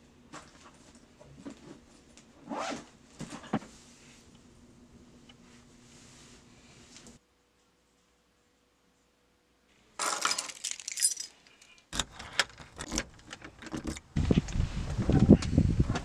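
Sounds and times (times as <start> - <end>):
keys jangling: 10.0 - 11.8.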